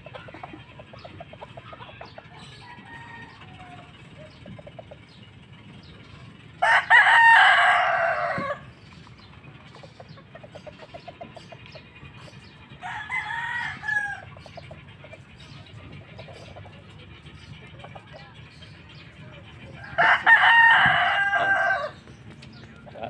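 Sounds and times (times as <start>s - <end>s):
hens clucking softly: 0.0s - 5.4s, 8.0s - 12.6s
rooster crowing: 2.4s - 4.0s, 6.6s - 8.7s, 12.8s - 14.3s, 19.8s - 22.0s.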